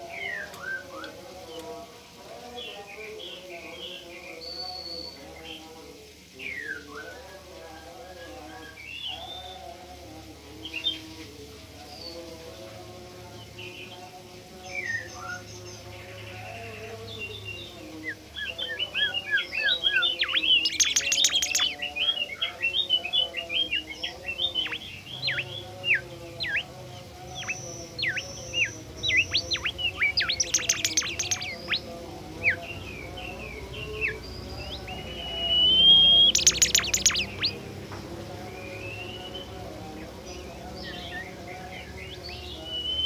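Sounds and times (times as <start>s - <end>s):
bird singing whistled notes: 3.9s - 5.2s, 17.3s - 37.6s, 38.5s - 39.6s, 40.4s - 43.0s
bird chattering bursts: 19.9s - 21.8s, 27.3s - 32.6s, 35.0s - 37.6s.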